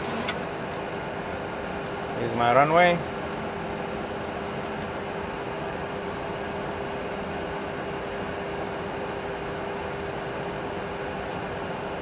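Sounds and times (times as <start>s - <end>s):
constant low hum: 0.0s - 12.0s.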